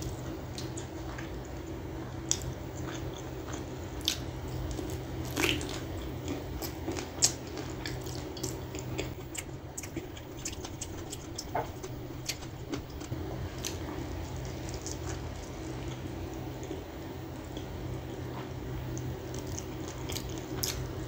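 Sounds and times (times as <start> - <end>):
steady low hum: 0.0 - 21.0
wet mouth eating sounds: 2.3 - 13.8.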